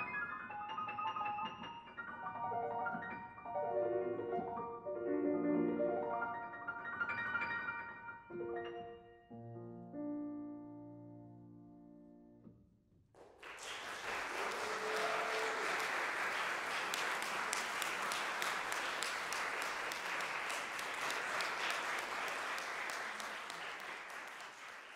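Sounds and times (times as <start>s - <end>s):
audience applause: 13.2s - 24.9s.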